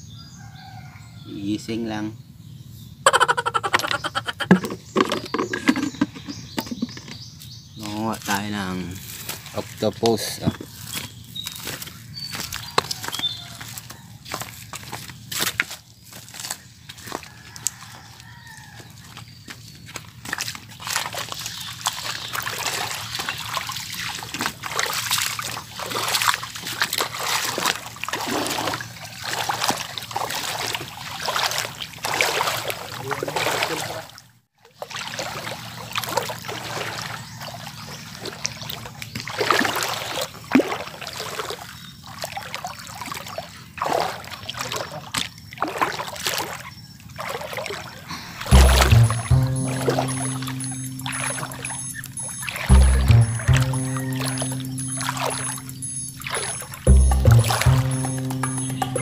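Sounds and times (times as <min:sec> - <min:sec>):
feet splashing through water: 0:09.0 - 0:56.9
music with low tones: 0:48.5 - 0:59.0.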